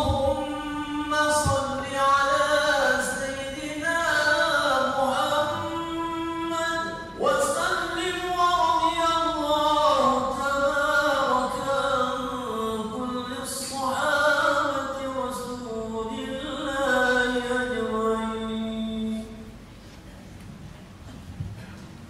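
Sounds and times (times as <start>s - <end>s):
person chanting melodically: 0.0s - 19.5s.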